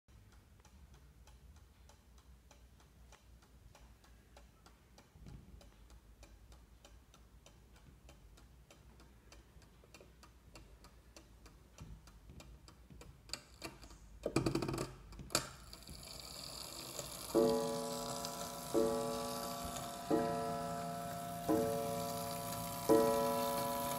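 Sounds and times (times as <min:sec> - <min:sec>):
clock ticking: 0:00.1 - 0:23.9
clock clicks and clatter: 0:11.6 - 0:23.9.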